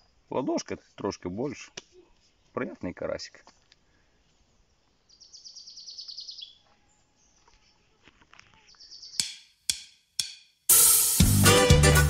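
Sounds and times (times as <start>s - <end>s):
songbird trilling: 5.1s - 6.6s, 8.7s - 9.5s.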